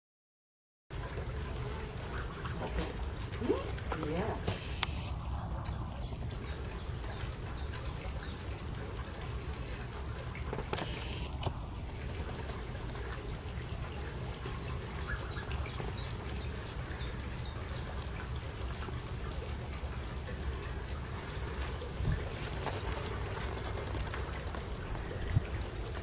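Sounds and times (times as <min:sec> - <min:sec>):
steady low rumble: 0:02.4 - 0:10.4
gosling peeping: 0:12.9 - 0:18.3.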